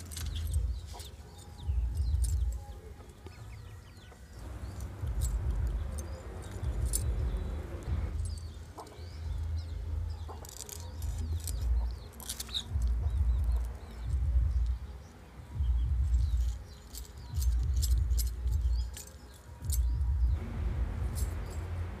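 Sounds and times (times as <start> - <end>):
low rumble: 4.4 - 8.6, 19.7 - 22.0.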